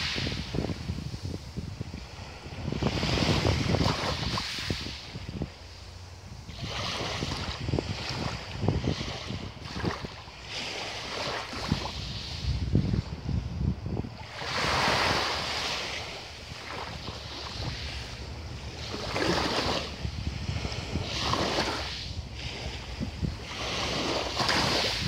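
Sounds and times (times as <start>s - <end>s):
waves lapping on pebble shore: 0.0s - 25.0s
wind rumble on microphone: 0.0s - 25.0s.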